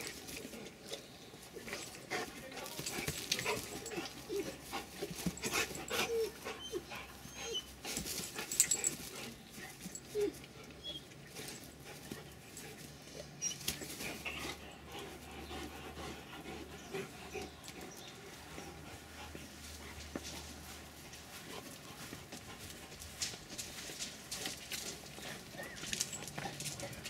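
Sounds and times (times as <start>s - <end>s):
dogs scuffling and pawing: 0.0s - 15.0s, 17.0s - 27.0s
dogs panting: 0.0s - 27.0s
dog whimpers: 5.9s - 7.8s.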